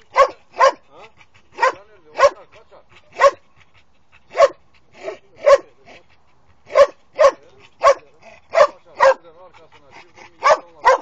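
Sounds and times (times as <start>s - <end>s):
dog barking sharply: 0.1s - 0.8s, 1.6s - 2.4s, 3.2s - 3.4s, 6.7s - 9.2s, 10.4s - 11.0s.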